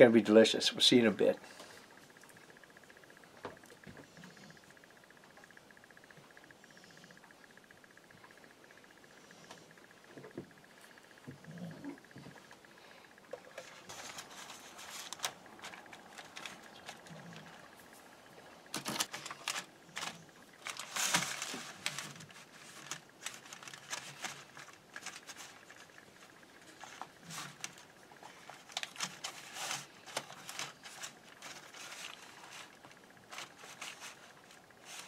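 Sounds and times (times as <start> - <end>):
foil crinkling and rustling: 13.6 - 17.6, 18.7 - 26.0, 26.7 - 35.0.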